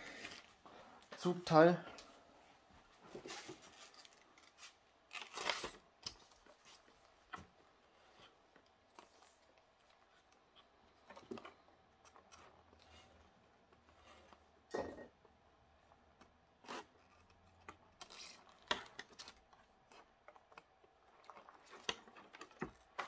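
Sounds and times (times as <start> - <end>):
plastic packaging rustling: 3.0 - 7.1.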